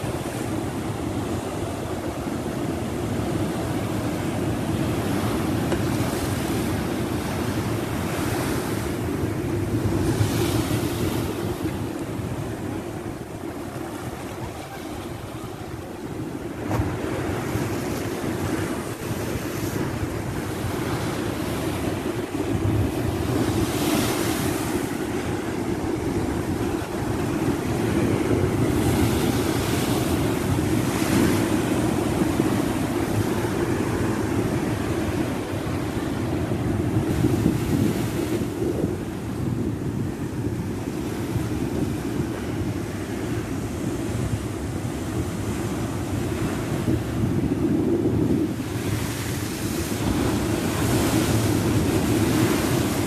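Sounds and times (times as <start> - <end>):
waves breaking on seawall: 0.0 - 39.0
wind buffeting microphone: 0.0 - 53.0.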